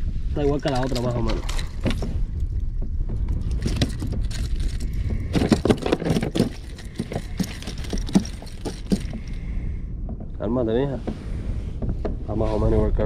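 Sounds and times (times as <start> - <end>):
wind rumble on microphone: 0.0 - 13.0
fish thrashing with knocks and slaps: 0.5 - 10.4.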